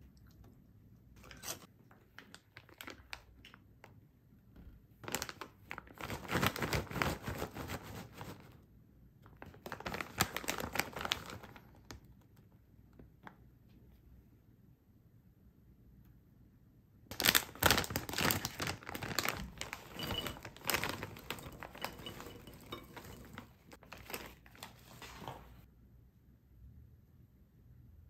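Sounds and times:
plastic snack bag crinkling: 0:01.3 - 0:03.7, 0:05.0 - 0:08.5, 0:09.2 - 0:12.2, 0:17.1 - 0:25.3.

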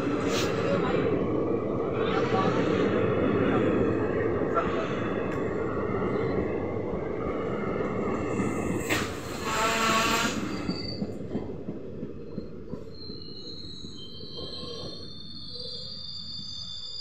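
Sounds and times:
rumble of train coaches: 0:00.0 - 0:17.0
train brakes squealing: 0:08.0 - 0:11.3, 0:12.2 - 0:17.0.

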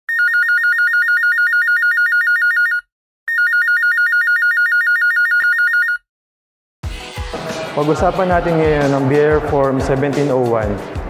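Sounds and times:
two-tone telephone ringtone: 0:00.1 - 0:06.0.

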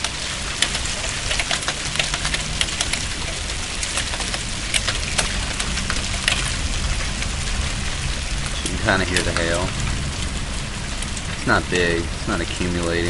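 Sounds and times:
hailstones ticking on hard surfaces: 0:00.0 - 0:13.0
heavy rain hissing: 0:00.0 - 0:13.0.

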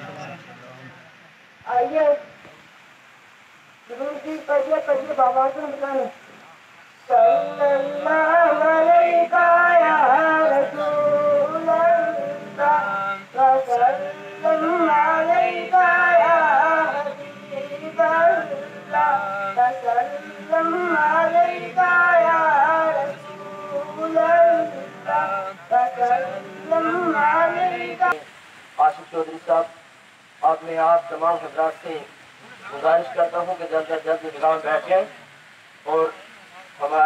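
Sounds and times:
boy singing unaccompanied: 0:03.9 - 0:06.2, 0:07.1 - 0:28.2.

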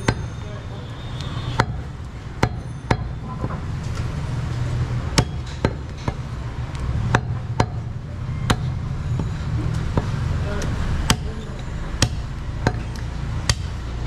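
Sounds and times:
cleaver chopping on wooden block: 0:05.1 - 0:06.2, 0:11.0 - 0:11.3, 0:12.0 - 0:12.8, 0:13.5 - 0:13.8.

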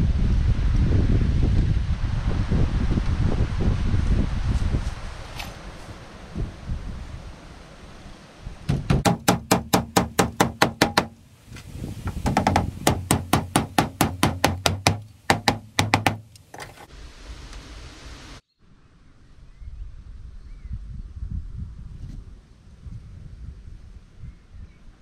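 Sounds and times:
hammer driving nails into wood: 0:08.7 - 0:11.2, 0:12.1 - 0:16.9.

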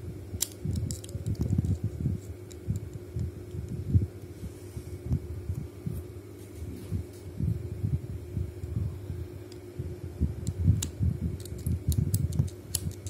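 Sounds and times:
padlock dial rubbing and handling: 0:00.4 - 0:03.6, 0:10.4 - 0:13.0.

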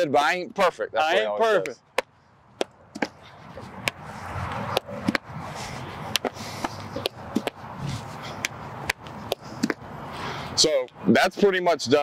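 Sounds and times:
steady rushing background noise: 0:00.0 - 0:12.0
bat hitting baseballs: 0:01.6 - 0:05.3, 0:06.1 - 0:07.6, 0:08.4 - 0:09.9.

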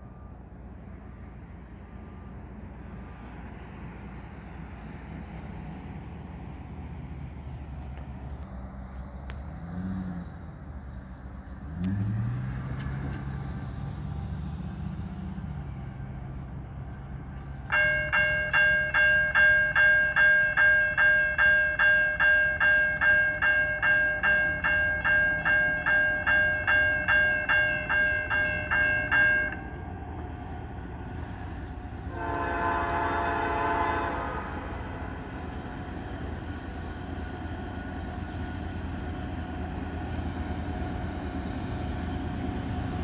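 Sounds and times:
truck engine pulling away: 0:04.9 - 0:17.7
crossing warning bell ringing: 0:15.4 - 0:43.0
locomotive horn: 0:32.0 - 0:35.4.

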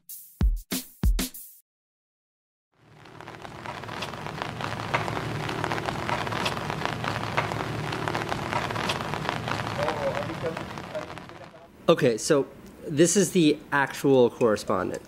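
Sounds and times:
heavy rain patter with ticks: 0:02.8 - 0:11.7.

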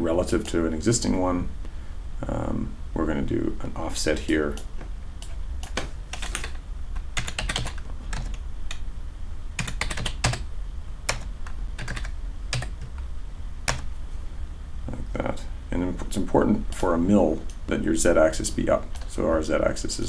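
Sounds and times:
keyboard typing clicks: 0:04.5 - 0:08.8, 0:13.7 - 0:13.9.

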